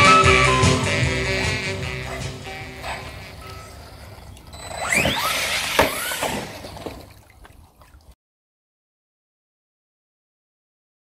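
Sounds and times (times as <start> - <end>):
background music: 0.0 - 4.1
toy truck motor whining: 2.8 - 6.6.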